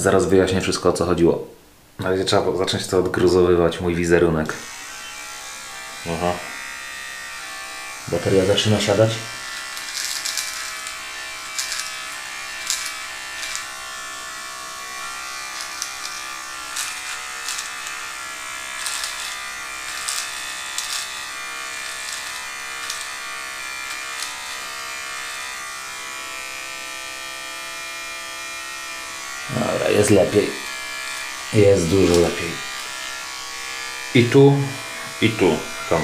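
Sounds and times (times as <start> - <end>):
electric beard trimmer buzzing: 4.4 - 36.0
trimmer blade crackling on stubble: 4.6 - 25.7, 29.2 - 36.0.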